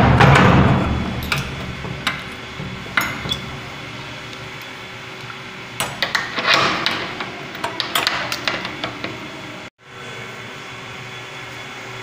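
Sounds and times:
metal bolt sliding shut: 0.2s - 4.7s, 5.8s - 9.3s
padlock clacking and clinking: 1.2s - 3.7s.

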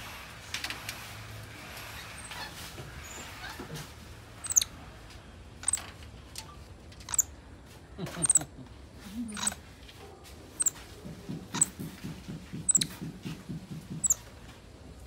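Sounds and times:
monkeys squeaking: 2.2s - 3.6s, 4.4s - 4.7s, 7.1s - 7.3s, 8.1s - 8.5s, 9.2s - 9.6s, 10.6s - 10.8s, 11.4s - 11.8s, 12.6s - 13.0s, 14.0s - 14.2s.

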